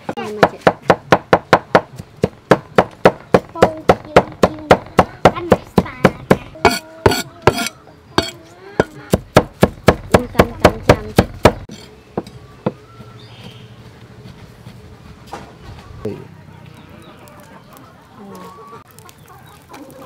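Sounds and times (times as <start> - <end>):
cleaver chopping on wooden block: 0.4 - 11.7.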